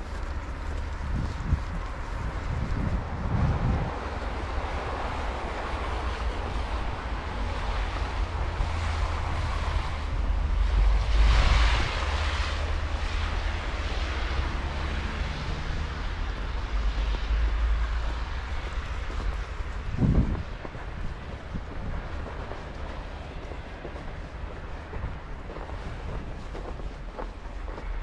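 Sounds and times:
outdoor rushing noise: 0.0s - 28.0s
wind buffeting microphone: 0.0s - 28.0s.

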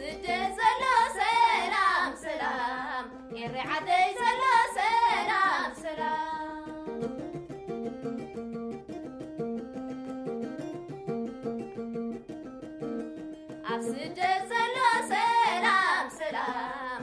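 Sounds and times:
women singing: 0.0s - 7.1s, 13.6s - 17.0s
plucked lyre: 0.0s - 17.0s.

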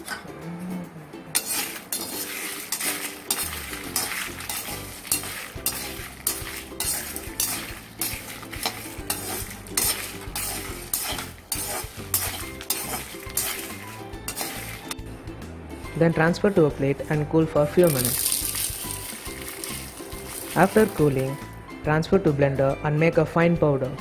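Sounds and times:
metal spatula scraping a pan: 1.3s - 15.0s, 17.0s - 21.4s.

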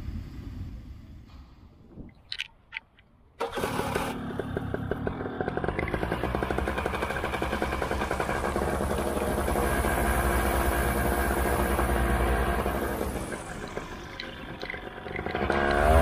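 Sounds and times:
two-stroke engine idling: 3.4s - 16.0s.

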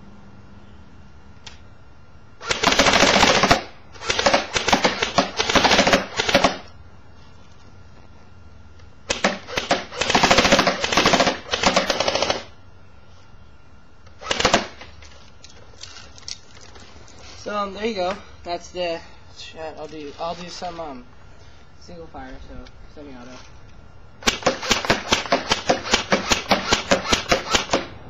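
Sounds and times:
airsoft gun firing bursts: 2.4s - 6.7s, 9.1s - 12.5s, 14.2s - 14.9s, 24.2s - 28.0s.

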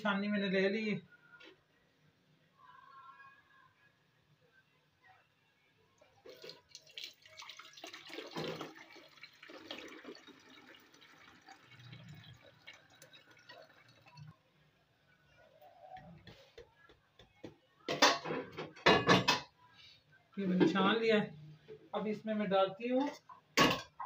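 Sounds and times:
liquid trickling through strainer: 6.2s - 14.4s.

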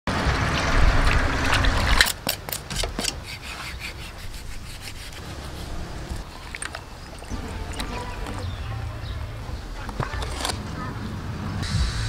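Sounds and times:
water sloshing in a basin: 0.5s - 2.2s, 5.4s - 8.6s
clicks and scrapes: 1.5s - 6.8s, 9.8s - 10.8s
knife sawing through raw meat: 3.2s - 6.0s.

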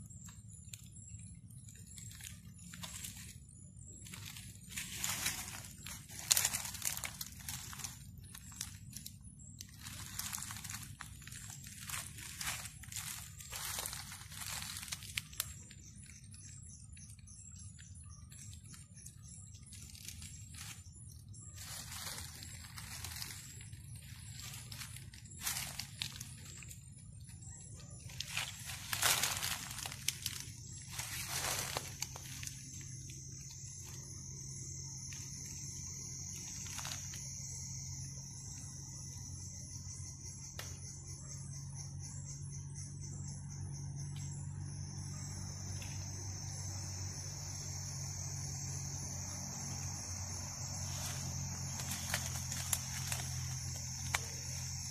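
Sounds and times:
crickets trilling: 0.0s - 54.9s
night insects chirping: 0.0s - 54.9s
rustling leaves and brush: 0.0s - 54.9s.

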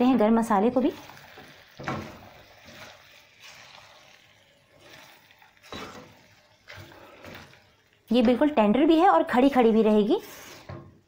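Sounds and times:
spatula scraping lentils in pan: 0.8s - 8.5s.

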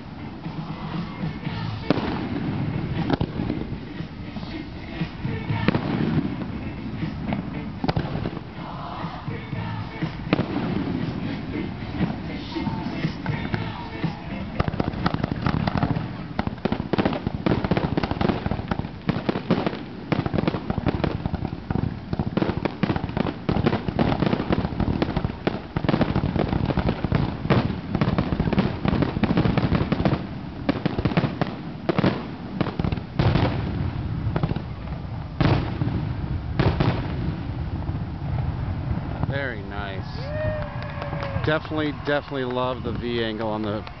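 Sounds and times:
fireworks shots bursting: 0.0s - 44.0s.

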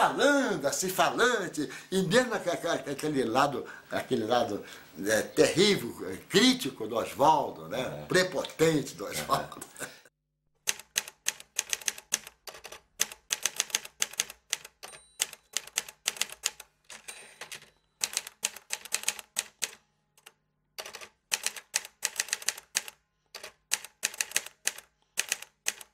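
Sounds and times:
typewriter keys clacking: 10.7s - 19.8s, 20.8s - 25.9s.

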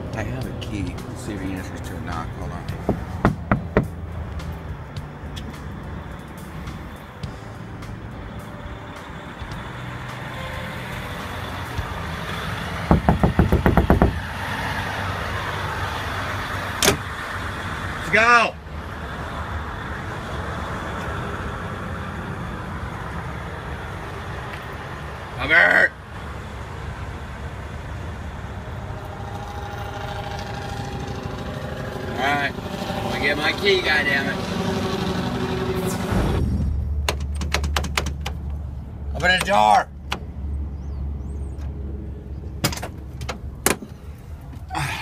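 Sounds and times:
diesel engine idling: 0.0s - 45.0s
fist knocking on truck door: 2.7s - 4.0s, 12.8s - 14.2s.

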